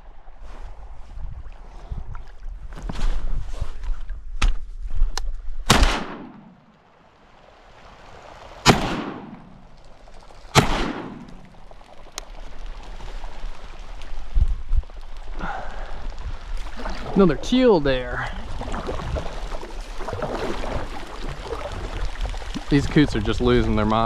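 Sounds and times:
shotgun shots with echo: 0:05.7 - 0:06.6, 0:08.6 - 0:09.5, 0:10.6 - 0:11.4.

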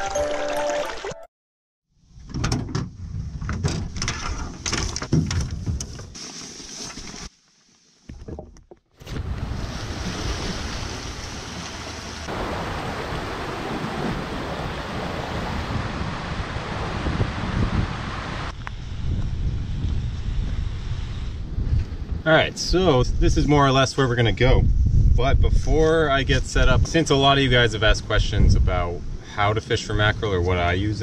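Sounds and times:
surf washing over rocks: 0:09.1 - 0:18.5
wind buffeting microphone: 0:12.2 - 0:29.2.

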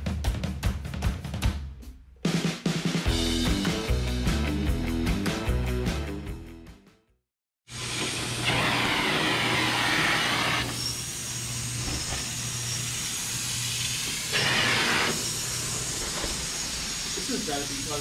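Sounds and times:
extraction vacuum drawing air: 0:07.7 - 0:18.0.

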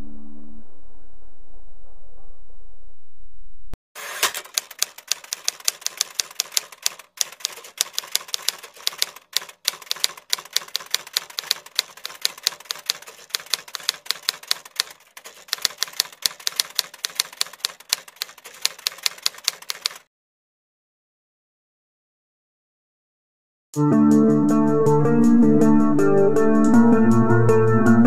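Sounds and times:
keyboard key clicks: 0:04.2 - 0:20.0.

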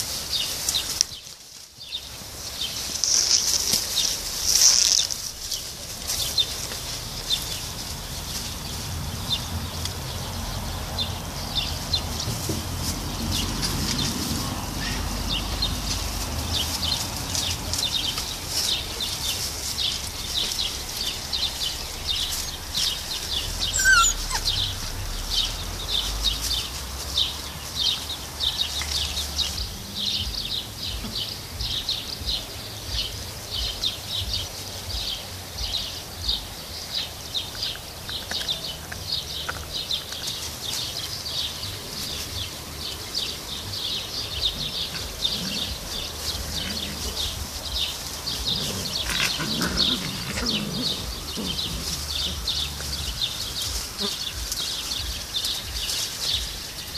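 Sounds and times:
rapid high chirping: 0:17.8 - 0:27.4.

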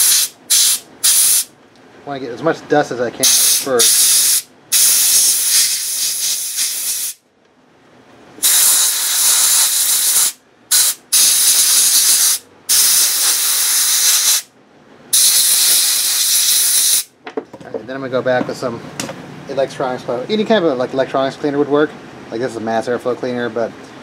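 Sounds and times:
compressed air blow gun hissing: 0:00.0 - 0:01.5, 0:03.2 - 0:07.2, 0:08.4 - 0:14.5, 0:15.2 - 0:17.1.

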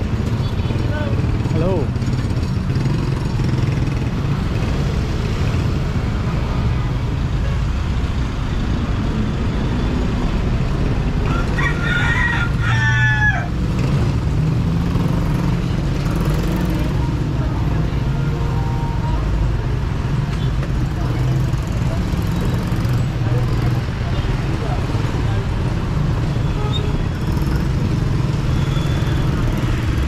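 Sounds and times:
street traffic rumble: 0:00.0 - 0:30.0
rooster crowing: 0:11.2 - 0:13.6.

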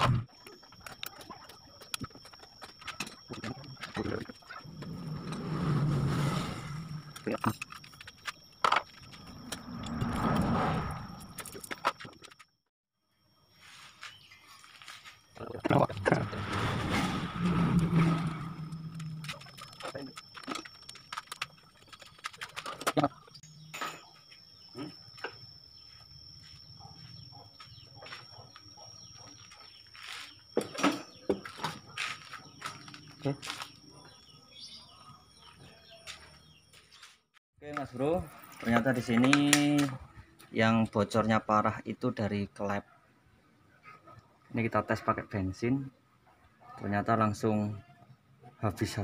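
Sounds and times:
engine hum: 0:15.9 - 0:20.6.

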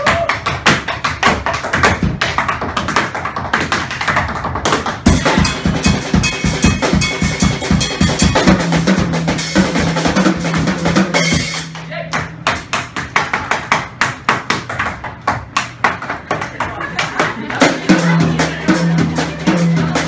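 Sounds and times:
tap shoes on wooden stage: 0:00.0 - 0:05.2, 0:10.2 - 0:17.7
band with drums and bass: 0:04.9 - 0:12.7, 0:17.3 - 0:20.0.

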